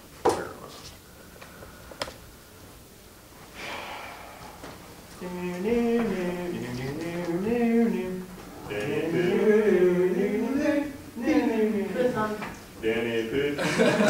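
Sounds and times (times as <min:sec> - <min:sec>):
man humming slow tune: 0:03.6 - 0:12.3.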